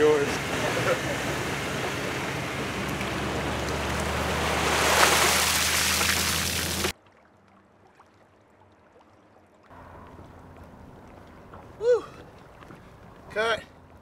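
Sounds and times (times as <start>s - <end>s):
pickup truck engine humming: 0.0s - 6.9s, 9.7s - 14.0s
water splashing: 0.0s - 14.0s.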